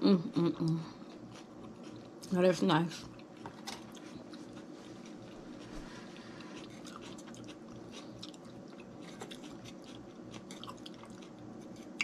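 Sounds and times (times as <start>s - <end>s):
faint steady hum: 0.0s - 12.0s
wet chewing clicks and smacks: 6.5s - 12.0s.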